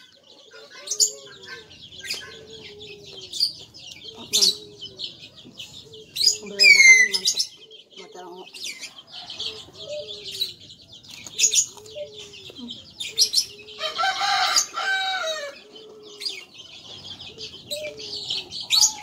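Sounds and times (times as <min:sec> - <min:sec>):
birds chirping: 0:00.0 - 0:19.0
rooster crowing: 0:13.7 - 0:16.4.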